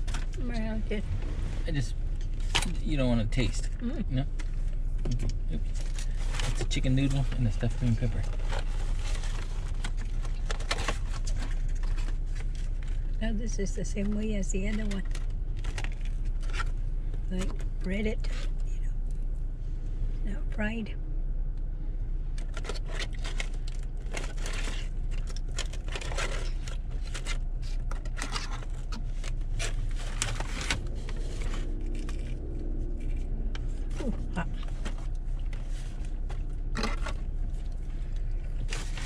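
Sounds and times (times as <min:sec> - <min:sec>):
steady low hum: 0:00.0 - 0:39.0
food packaging rustling and crinkling: 0:05.6 - 0:13.2, 0:14.7 - 0:16.8, 0:22.4 - 0:39.0.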